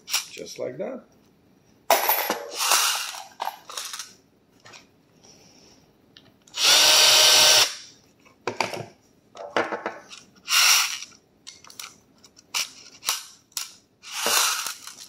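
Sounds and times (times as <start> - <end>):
cordless drill spinning: 6.5 - 7.8, 10.5 - 11.1, 14.0 - 15.0.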